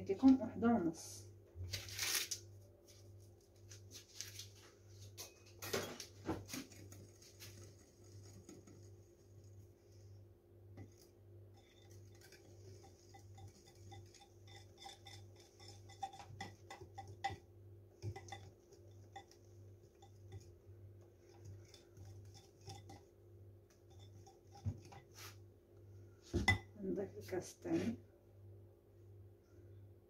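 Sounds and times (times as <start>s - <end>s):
whisk ticking against glass bowl: 10.8s - 20.6s, 21.2s - 23.1s, 23.8s - 25.1s.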